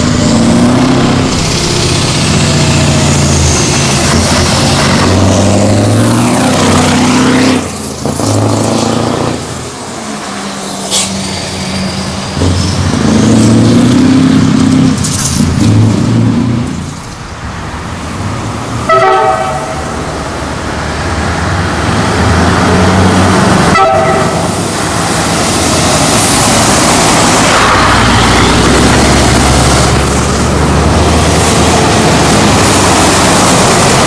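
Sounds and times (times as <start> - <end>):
truck engines pulling away: 0.0 - 18.9, 19.8 - 34.0
truck horn blasts: 18.9 - 19.9, 23.7 - 24.5.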